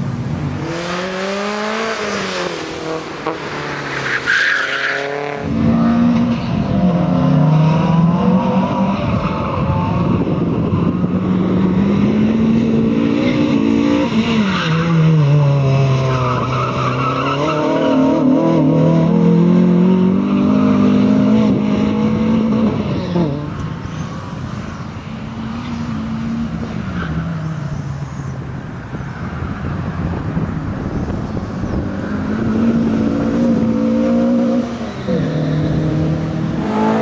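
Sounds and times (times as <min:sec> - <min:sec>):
rally car engine revving: 0:31.6 - 0:37.0.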